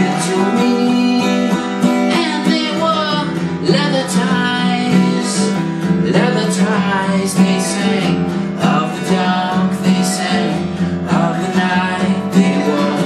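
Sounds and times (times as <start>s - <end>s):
acoustic guitar strumming: 0.0s - 13.0s
man singing: 0.0s - 13.0s.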